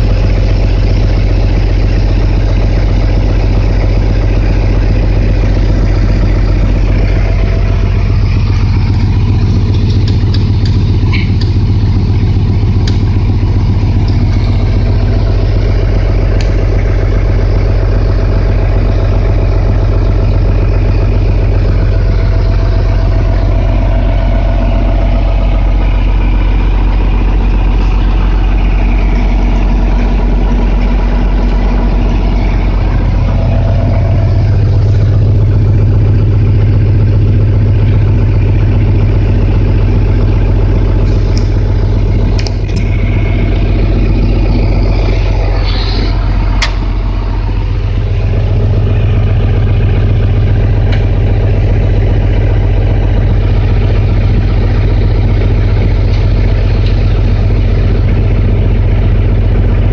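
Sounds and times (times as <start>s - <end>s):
tractor diesel engine idling: 0.0s - 59.9s
clicks: 9.7s - 11.7s, 12.8s - 13.3s, 14.0s - 14.6s, 16.4s - 16.6s, 42.4s - 44.1s.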